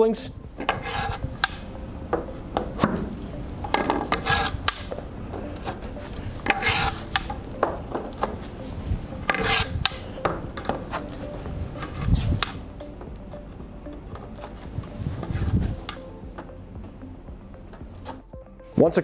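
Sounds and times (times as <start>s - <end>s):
pipe grating into fitting: 0.6s - 1.6s, 3.8s - 4.9s, 6.4s - 7.3s, 9.2s - 10.2s.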